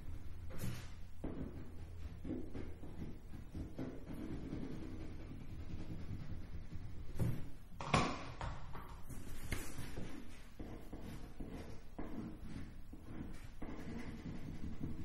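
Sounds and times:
marker pen scratching on paper: 0:00.0 - 0:07.6, 0:09.1 - 0:15.0.

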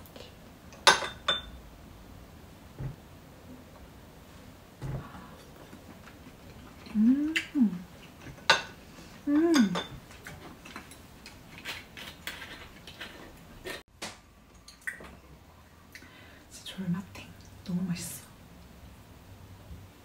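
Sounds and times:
tableware clinking: 0:00.8 - 0:01.6, 0:08.2 - 0:08.8, 0:09.5 - 0:10.0
person humming: 0:06.9 - 0:07.9, 0:09.2 - 0:09.8.

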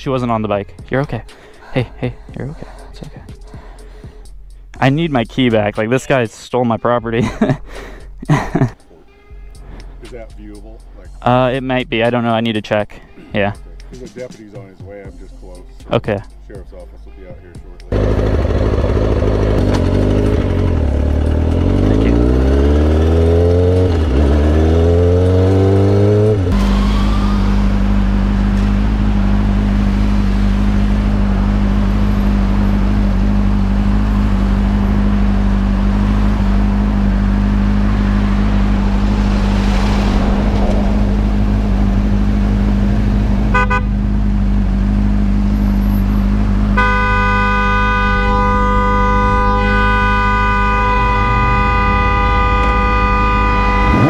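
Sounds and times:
motorcycle engine idling: 0:17.9 - 0:22.4
motorcycle engine accelerating: 0:17.9 - 0:54.0
car horn honking: 0:43.4 - 0:44.2, 0:45.8 - 0:54.0.

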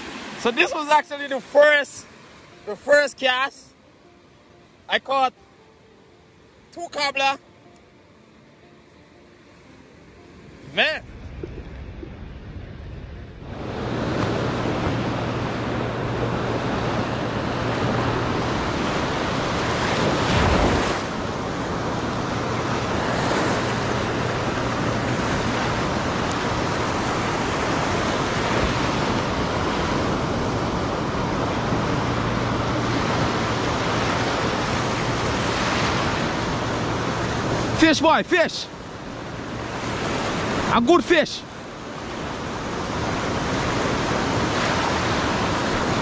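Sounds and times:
ocean surf breaking: 0:00.0 - 0:07.4, 0:09.2 - 0:46.0
wind on microphone: 0:11.0 - 0:37.8.

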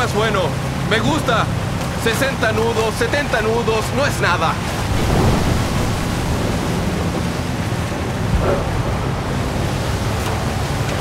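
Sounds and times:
constant low rumble: 0:00.0 - 0:11.0
rough sea noise: 0:00.0 - 0:11.0
storm wind: 0:04.0 - 0:11.0.

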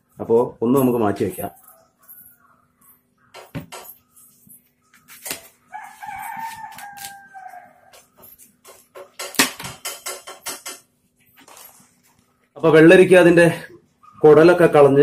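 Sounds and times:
rooster crowing: 0:05.7 - 0:08.2.

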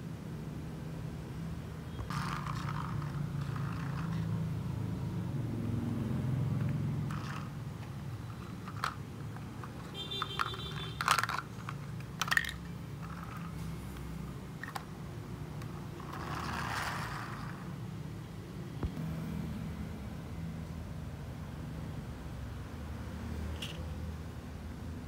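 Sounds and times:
plastic toy clicks and knocks on concrete: 0:02.0 - 0:04.5, 0:06.5 - 0:17.8, 0:23.5 - 0:23.9.

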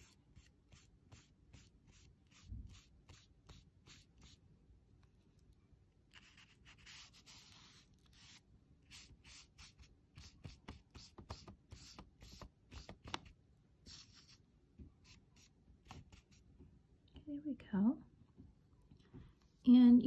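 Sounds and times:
brush strokes on paper: 0:00.0 - 0:04.4, 0:06.1 - 0:13.1, 0:13.8 - 0:14.4.

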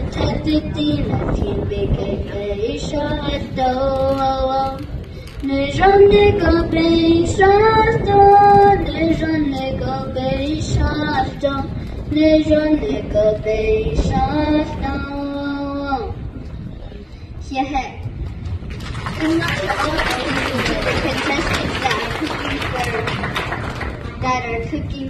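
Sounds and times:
girl singing: 0:00.0 - 0:16.3.

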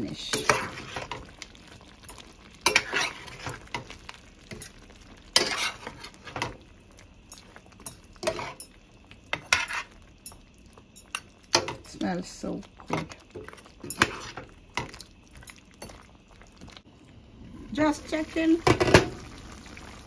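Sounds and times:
curry simmering sizzle: 0:00.0 - 0:20.0
metal spoon scraping a pan: 0:00.2 - 0:01.2, 0:02.6 - 0:03.9, 0:05.4 - 0:06.5, 0:07.8 - 0:08.7, 0:09.3 - 0:10.0, 0:12.9 - 0:14.9.

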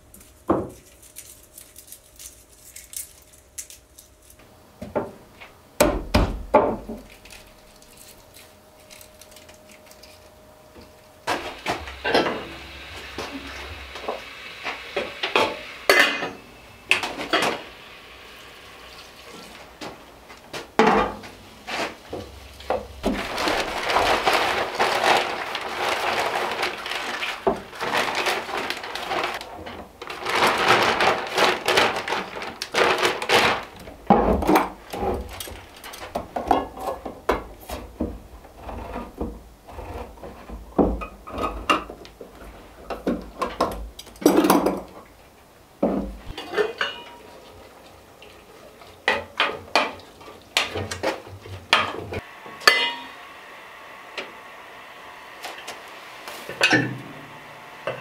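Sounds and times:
crackling rustle: 0:00.0 - 0:04.6, 0:06.8 - 0:15.6, 0:18.9 - 0:45.4
cookware clanking: 0:15.4 - 0:17.6, 0:46.3 - 0:47.3, 0:51.8 - 0:53.2, 0:56.6 - 0:57.0.

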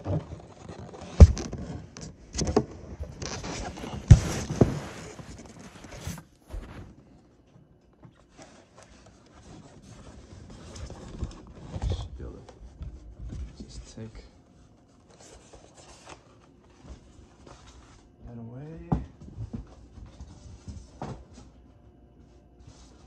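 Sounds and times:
packaging rustling and scraping: 0:00.0 - 0:07.2, 0:08.2 - 0:12.7, 0:13.3 - 0:17.9.

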